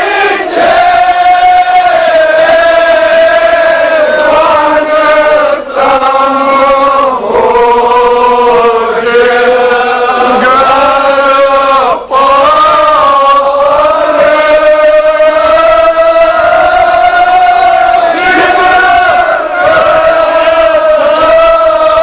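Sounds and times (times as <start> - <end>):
men chanting together: 0.0 - 22.0.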